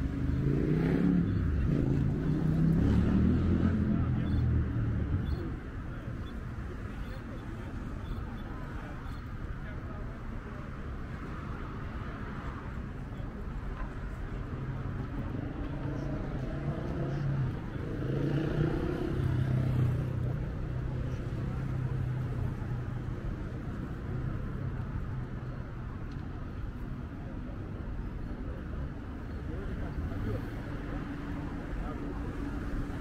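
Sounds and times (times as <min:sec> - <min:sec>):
vehicle passing: 0:00.0 - 0:05.1
city street traffic: 0:00.0 - 0:33.0.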